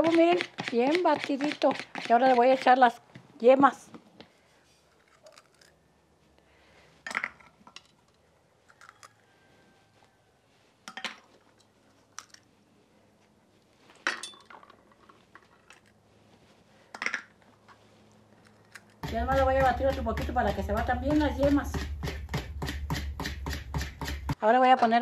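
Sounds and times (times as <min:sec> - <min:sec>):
eggshells and dishes clinking: 0:14.1 - 0:14.8.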